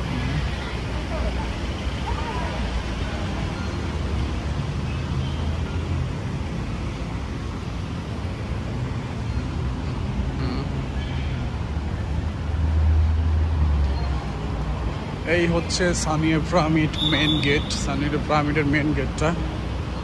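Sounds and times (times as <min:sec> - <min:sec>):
road traffic with engine rumble: 0:00.0 - 0:20.0.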